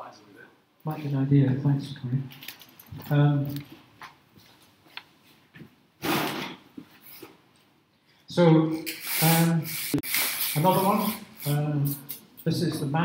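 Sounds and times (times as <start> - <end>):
man talking: 0.0 - 2.4, 3.0 - 3.7, 8.3 - 9.8, 10.6 - 13.0
burst of noise: 6.0 - 6.6.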